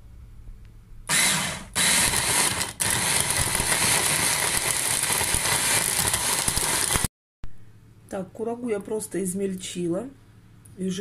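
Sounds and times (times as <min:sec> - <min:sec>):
electric chopper blending: 0:01.1 - 0:07.1.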